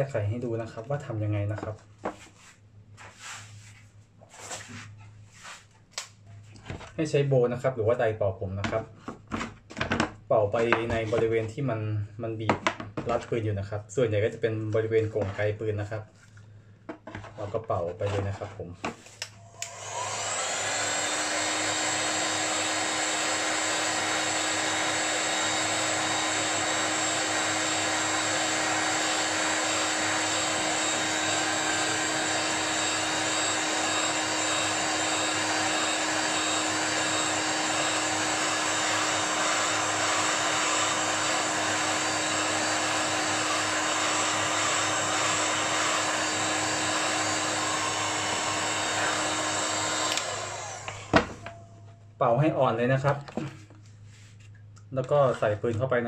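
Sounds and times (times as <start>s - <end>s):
hot-air blower running: 19.1s - 51.8s.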